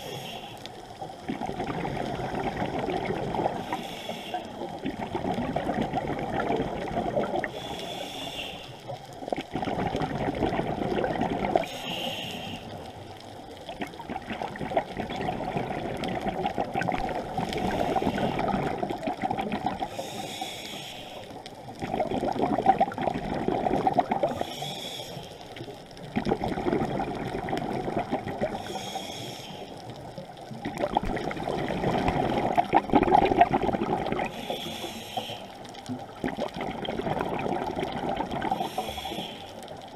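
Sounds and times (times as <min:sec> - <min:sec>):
regulator hiss on inhale: 0:00.0 - 0:01.2, 0:03.5 - 0:04.8, 0:07.4 - 0:09.1, 0:11.6 - 0:13.3, 0:17.4 - 0:18.7, 0:19.8 - 0:21.6, 0:24.2 - 0:25.8, 0:28.5 - 0:30.0, 0:34.3 - 0:36.0, 0:38.5 - 0:39.9
bubbling exhaust: 0:30.6 - 0:35.0.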